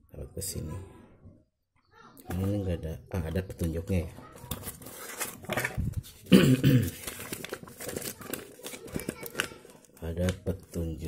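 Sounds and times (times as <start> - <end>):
paper rustling and crinkling: 3.6 - 10.9.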